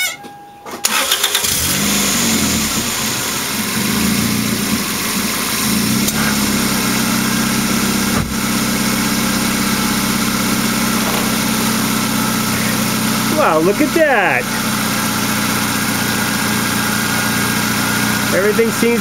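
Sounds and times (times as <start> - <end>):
car engine idling: 0.8 - 19.0.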